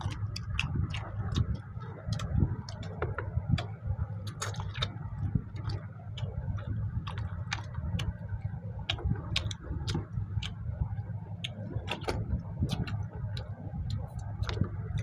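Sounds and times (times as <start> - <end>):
low steady hum: 0.0 - 15.0
people chewing with lip smacks: 0.0 - 15.0.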